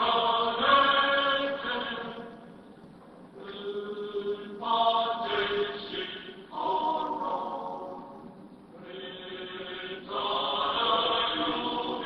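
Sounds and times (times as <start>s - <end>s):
choir singing chant-like line: 0.0s - 2.2s, 3.4s - 8.1s, 8.8s - 12.0s.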